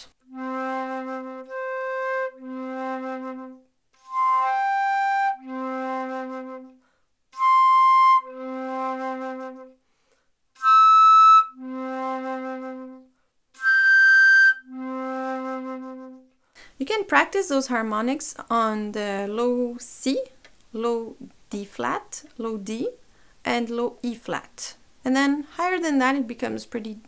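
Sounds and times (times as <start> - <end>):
flute playing harmonics: 0.0 - 9.8, 10.6 - 16.3
flute player breaths: 6.8 - 7.1, 9.8 - 10.4.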